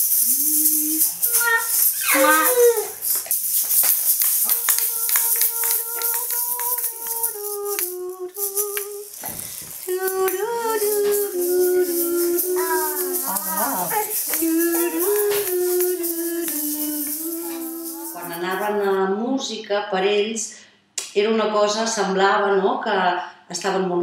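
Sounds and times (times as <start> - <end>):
person singing simple tune: 0.0 - 3.1, 4.4 - 19.0
egg shakers rattling: 0.0 - 19.0
child's voice: 0.3 - 3.0, 11.9 - 15.6.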